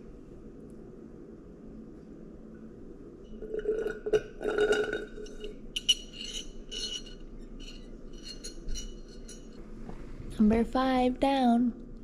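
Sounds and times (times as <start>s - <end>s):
glass jar clinking: 3.3s - 9.6s.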